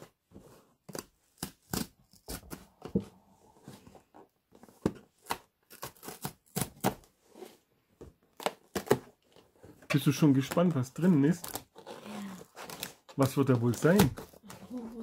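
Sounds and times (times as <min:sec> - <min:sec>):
cardboard ripping along perforation: 0:05.2 - 0:07.1, 0:11.0 - 0:15.0.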